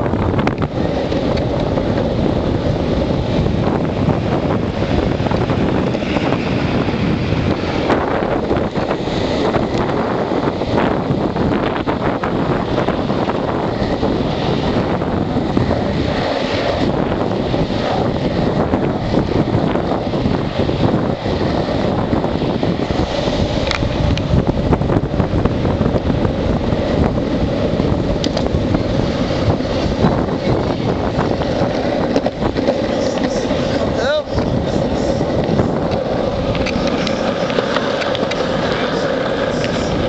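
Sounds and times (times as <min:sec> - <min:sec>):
longboard wheels rolling on asphalt: 0:00.0 - 0:40.0
wind buffeting microphone: 0:00.0 - 0:40.0.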